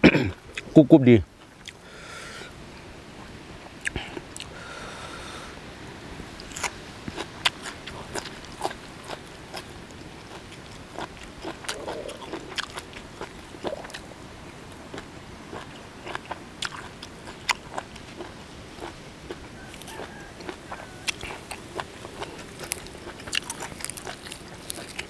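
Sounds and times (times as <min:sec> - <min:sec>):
crunchy chewing: 0:06.4 - 0:25.0.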